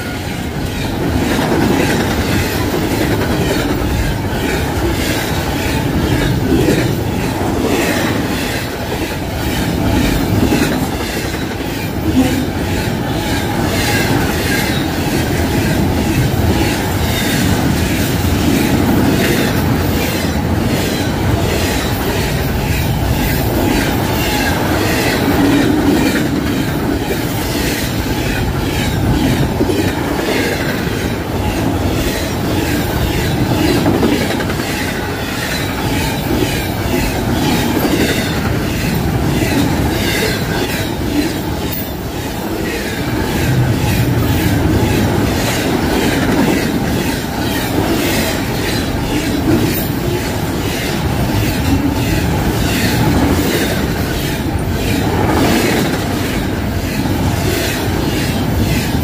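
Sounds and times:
freight train rumble: 0.0 - 59.0.

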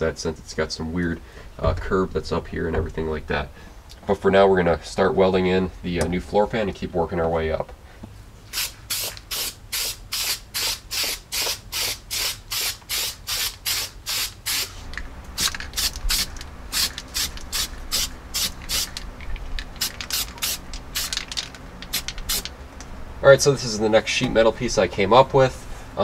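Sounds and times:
aerosol spray hissing bursts: 8.5 - 14.8, 15.8 - 18.9, 19.8 - 21.1.

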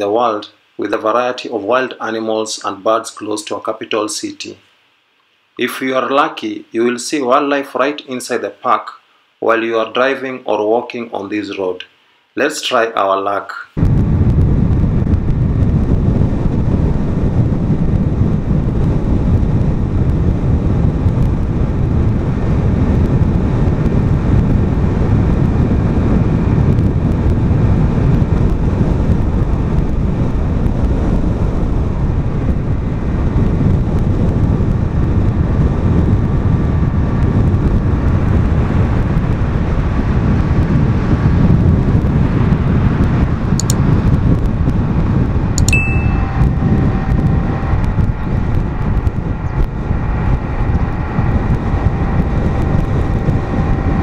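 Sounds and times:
car road noise at speed: 13.8 - 54.0
wind buffeting the microphone: 13.8 - 54.0.

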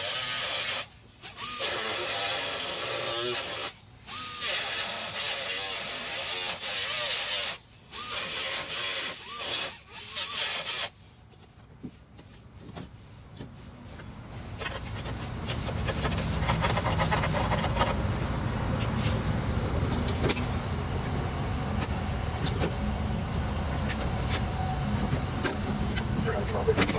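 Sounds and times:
cut-off wheel grinding steel: 0.0 - 11.0.

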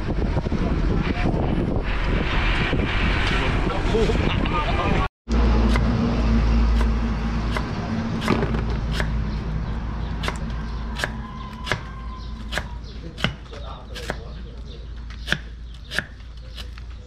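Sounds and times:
low rumble: 0.0 - 11.6
knife chopping on wooden block: 11.0 - 14.2, 15.2 - 16.8.

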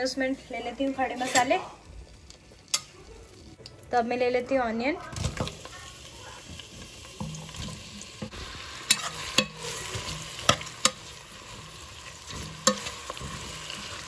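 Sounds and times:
onions sizzling in hot oil: 5.1 - 14.0.

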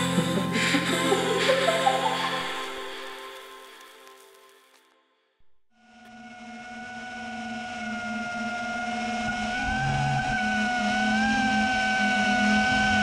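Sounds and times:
quadcopter motors whining: 5.8 - 13.0.

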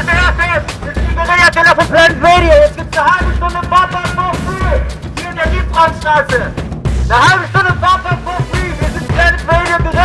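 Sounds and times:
heavy bass notes: 0.0 - 10.0
song with sung vocals: 6.6 - 10.0.

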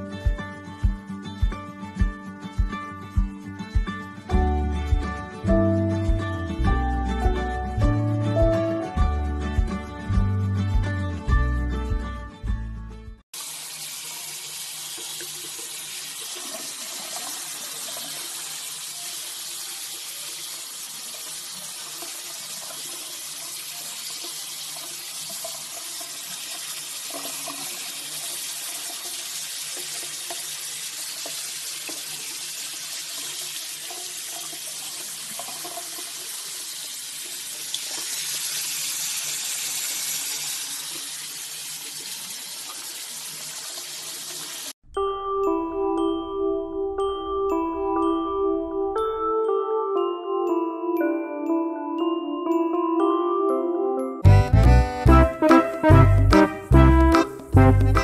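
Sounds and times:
tap water running into sink: 13.4 - 44.8.

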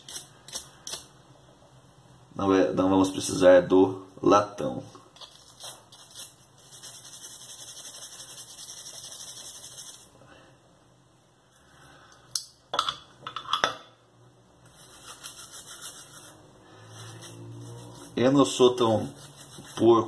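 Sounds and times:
brush scrubbing metal: 5.4 - 10.1, 14.7 - 20.0.

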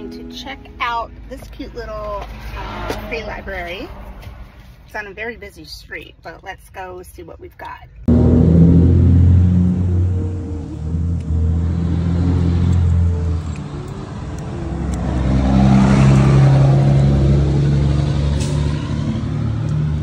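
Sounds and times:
car engines running: 8.0 - 20.0
vehicle passing close: 8.1 - 20.0.

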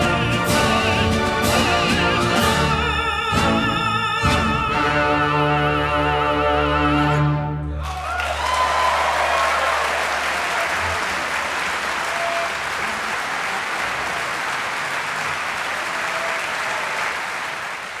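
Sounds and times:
audience applauding: 7.8 - 18.0.

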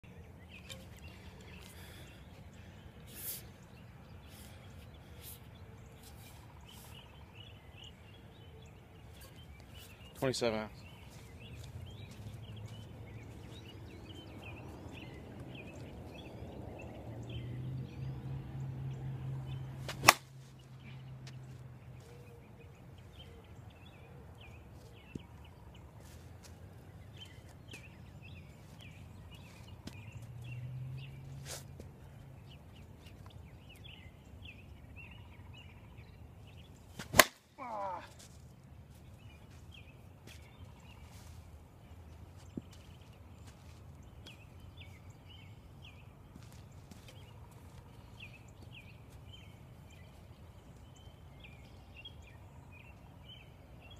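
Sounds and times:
bat cracking against softball: 19.8 - 20.4, 37.0 - 38.0.

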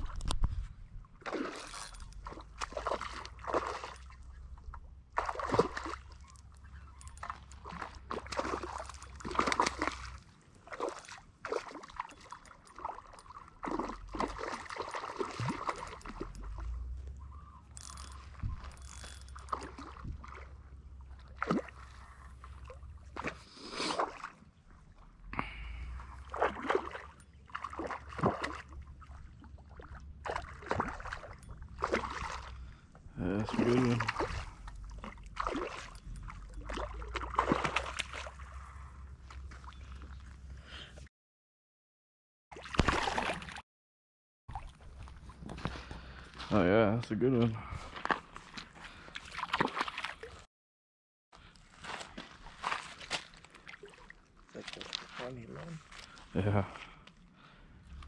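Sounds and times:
water splashing at shoreline: 1.2 - 4.4, 5.1 - 17.0, 17.8 - 39.8, 42.5 - 43.6, 48.0 - 50.5, 52.1 - 56.2.

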